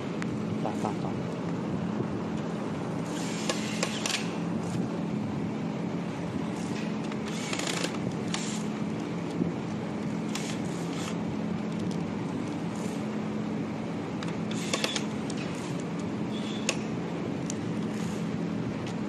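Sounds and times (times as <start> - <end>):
steady low hum: 0.0 - 19.0
electric screwdriver driving screws: 7.3 - 8.7, 10.3 - 11.2, 14.5 - 15.8.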